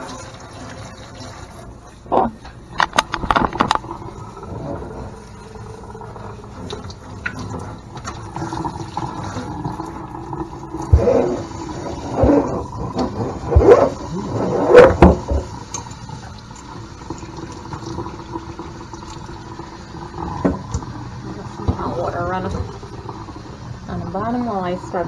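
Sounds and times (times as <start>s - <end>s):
tap water splashing into sink: 6.5s - 24.6s.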